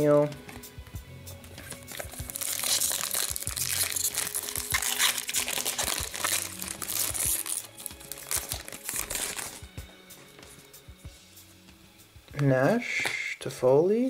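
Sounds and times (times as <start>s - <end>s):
background music: 0.0s - 14.0s
foil wrapper crinkling: 1.6s - 9.7s.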